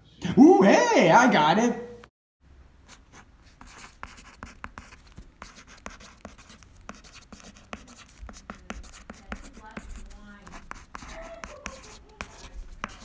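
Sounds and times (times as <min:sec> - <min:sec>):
pencil scratching on paper: 0:02.9 - 0:13.0.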